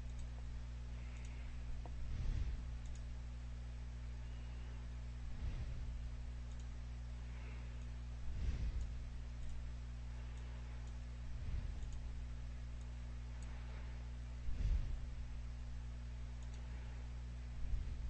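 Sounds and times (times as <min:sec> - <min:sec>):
computer mouse clicking: 0:00.0 - 0:00.5, 0:01.1 - 0:02.0, 0:02.8 - 0:03.1, 0:06.4 - 0:06.8, 0:08.6 - 0:09.6, 0:10.3 - 0:12.0, 0:16.4 - 0:16.7
low electrical hum: 0:00.0 - 0:18.0.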